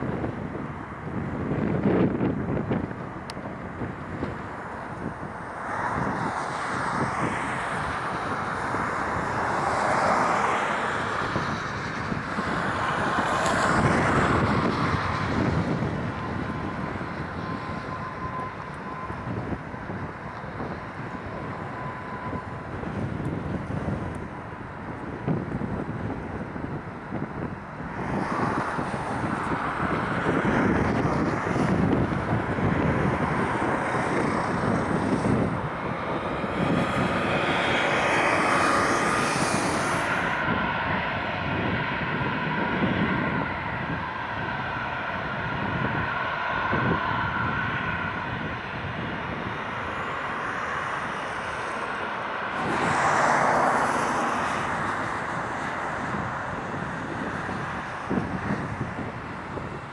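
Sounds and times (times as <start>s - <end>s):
jet engines roaring: 0.0s - 59.9s
wind rumbling on microphone: 0.0s - 59.9s.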